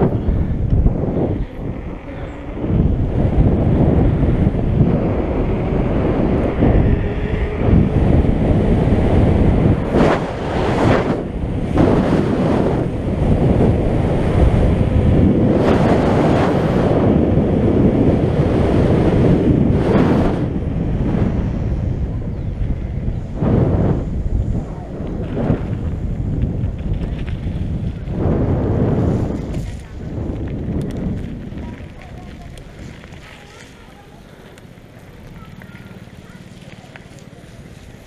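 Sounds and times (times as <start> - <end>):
wind buffeting microphone: 0.0 - 38.0.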